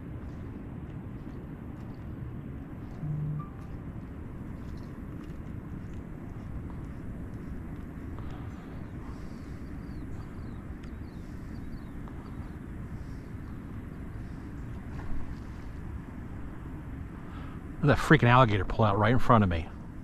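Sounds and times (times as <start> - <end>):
low outdoor rumble: 0.0 - 20.0
bird chirping: 5.7 - 14.7.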